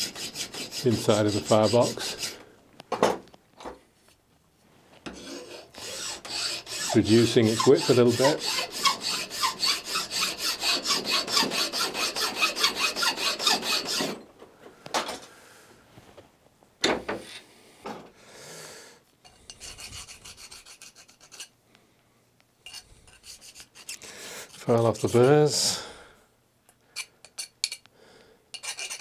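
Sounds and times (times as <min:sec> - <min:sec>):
file rasping on steel: 0:00.0 - 0:02.4, 0:05.1 - 0:14.2, 0:19.3 - 0:21.5, 0:22.7 - 0:25.6, 0:28.5 - 0:29.0.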